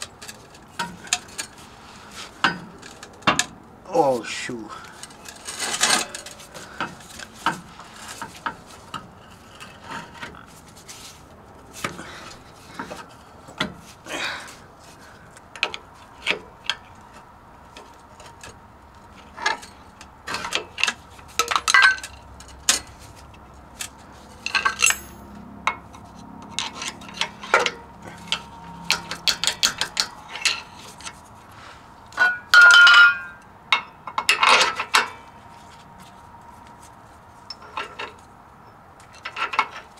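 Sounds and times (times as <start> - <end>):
metal tool clinks and knocks: 24.4 - 25.8, 32.2 - 35.1.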